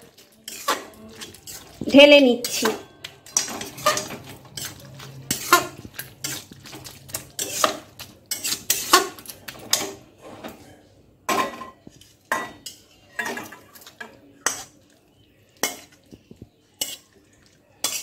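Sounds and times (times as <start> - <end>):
spatula scraping a pan: 0.0 - 10.9, 11.5 - 14.8, 15.5 - 18.0.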